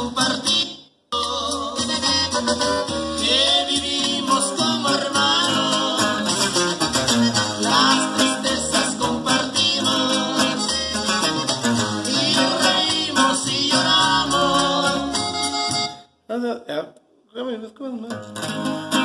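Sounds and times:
man singing: 0.0s - 15.6s
guitar strummed and picked: 2.0s - 16.0s, 18.1s - 19.0s.

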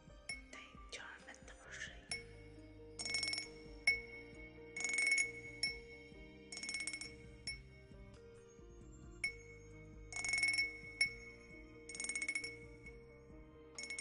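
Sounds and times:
soft sustained low notes: 0.0s - 14.0s
glassy chime strikes: 2.1s - 7.8s, 10.1s - 13.1s.

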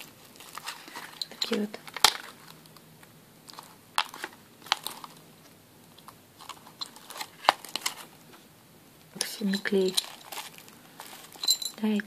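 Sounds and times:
plastic bag crinkling: 0.0s - 2.7s, 3.5s - 5.2s, 6.4s - 8.2s, 9.2s - 12.0s.

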